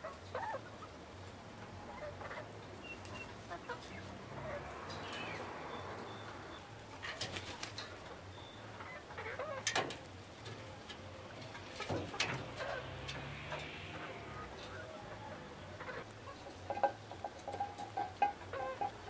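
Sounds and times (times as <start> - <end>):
wing flaps and clicks: 7.1 - 8.0.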